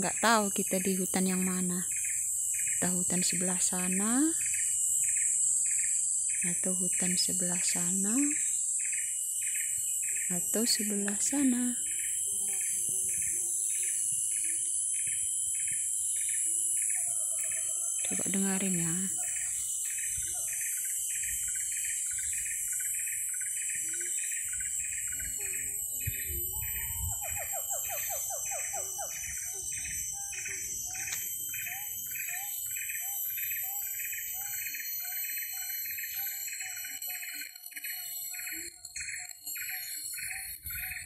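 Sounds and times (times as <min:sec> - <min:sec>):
high-pitched insect drone: 0:00.0 - 0:41.0
siamang calling: 0:10.1 - 0:20.9, 0:25.0 - 0:37.5.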